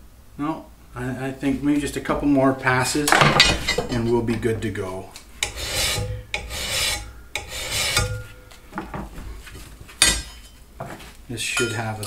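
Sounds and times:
file scraping steel blade: 5.4s - 8.3s.

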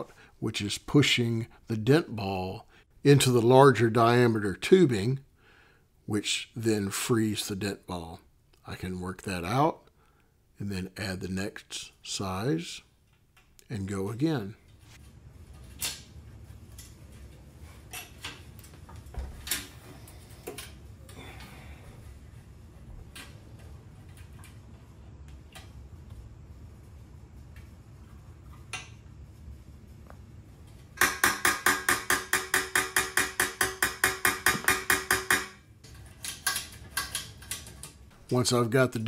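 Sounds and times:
hammer tapping on metal tube: 31.0s - 35.6s
metallic clicks and scrapes: 35.8s - 38.1s.

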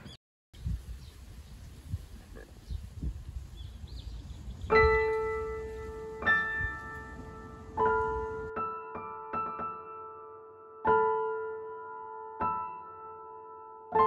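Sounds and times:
faint outdoor ambience: 0.0s - 8.6s
slow piano notes ringing: 4.7s - 14.0s.

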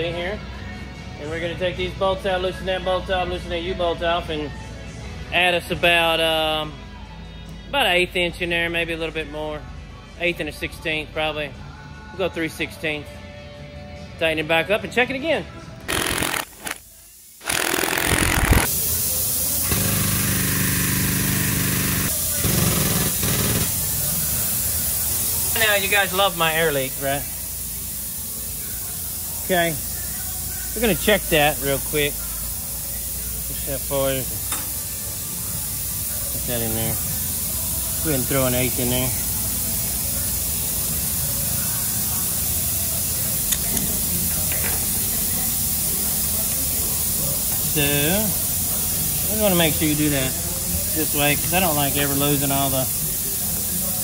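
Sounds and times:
impact wrench hammering: 15.9s - 16.8s, 17.4s - 18.7s, 19.6s - 23.8s
air leak hissing: 15.9s - 54.0s.

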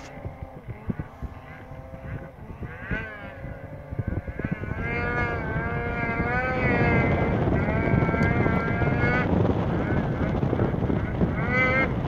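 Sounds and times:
snowmobile engine running hard: 0.0s - 12.0s
wind rumble on microphone: 0.0s - 12.0s.

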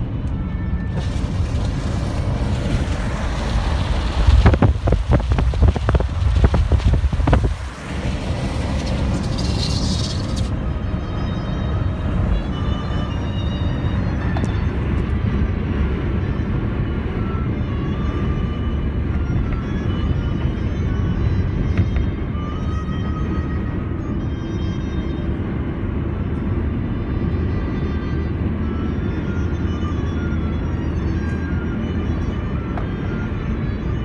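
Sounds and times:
engine and road rumble: 0.0s - 34.0s
tyres hissing on wet road: 1.0s - 10.5s.

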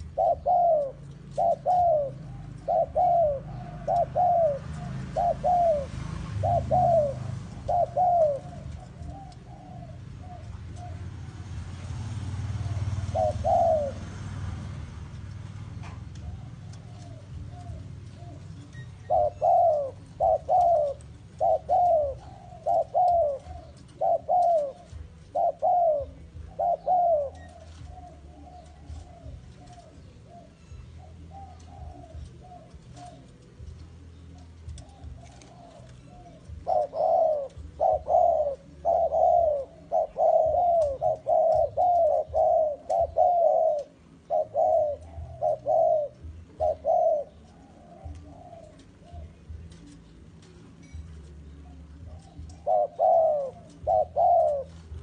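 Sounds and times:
doves cooing: 0.0s - 55.0s.

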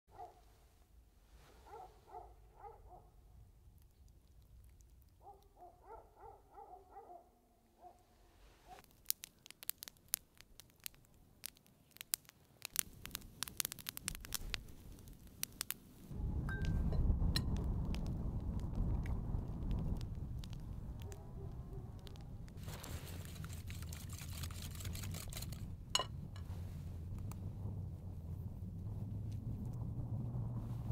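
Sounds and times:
campfire crackling and popping: 3.6s - 5.3s, 8.8s - 30.9s
low rushing noise: 16.1s - 22.6s.

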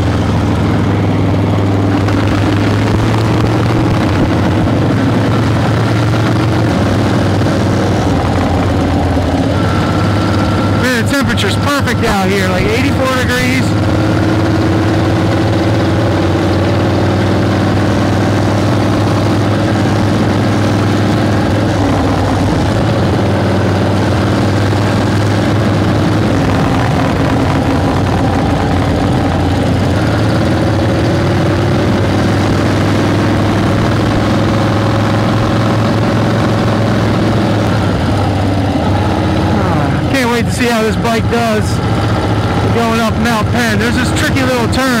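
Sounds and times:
motorcycle engine running: 0.0s - 45.0s.

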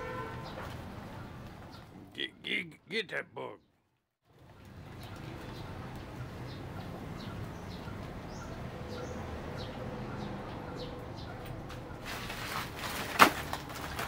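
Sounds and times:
crinkling of plastic sacks: 12.1s - 14.0s.

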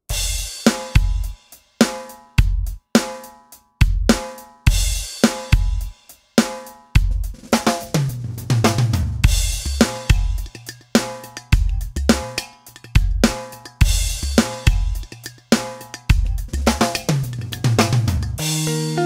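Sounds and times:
drum kit beat: 0.0s - 19.0s.

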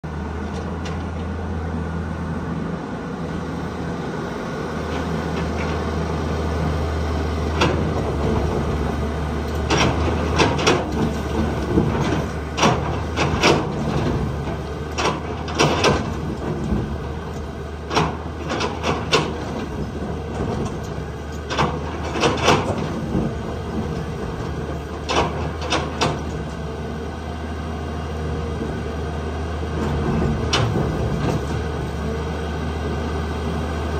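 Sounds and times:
excavator diesel engine running: 0.0s - 33.9s.

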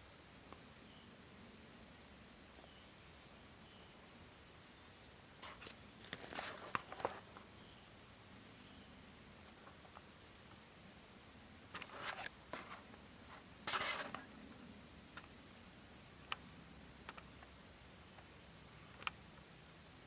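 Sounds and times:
scratchy rustling and scraping: 5.4s - 7.4s, 11.8s - 14.2s.

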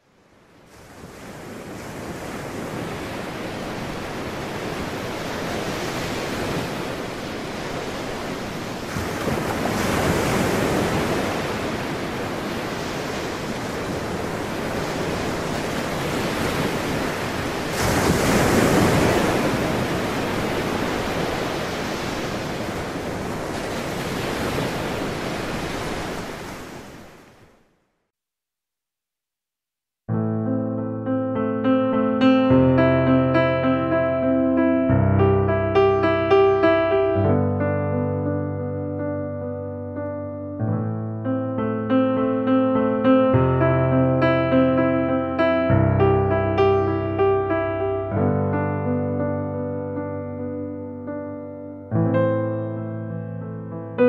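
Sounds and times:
waves breaking on rocks: 0.8s - 27.5s.

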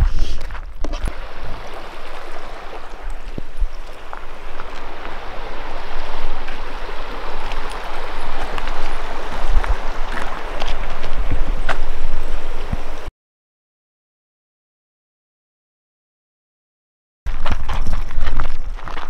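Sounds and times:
creek water rushing over stones: 0.5s - 13.1s.

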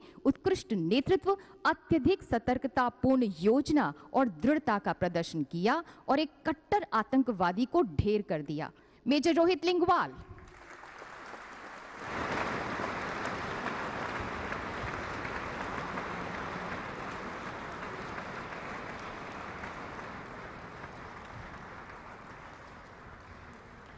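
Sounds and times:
audience applauding: 10.4s - 23.9s.

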